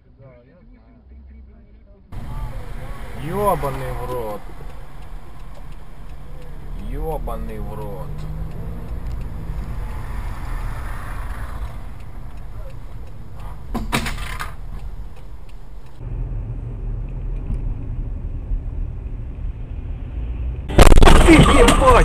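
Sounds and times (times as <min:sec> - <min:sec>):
dull heavy low rumble: 0:00.0 - 0:10.0
car road and engine noise: 0:00.0 - 0:22.0
brief loud noise burst: 0:20.7 - 0:22.0.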